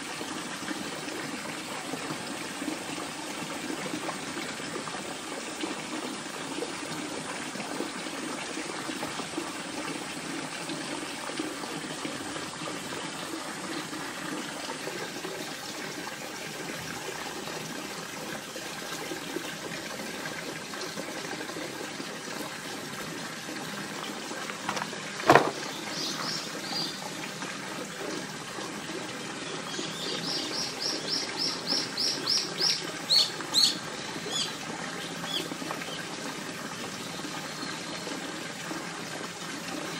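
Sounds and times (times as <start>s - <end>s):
bird chirping rapidly: 30.3s - 34.5s.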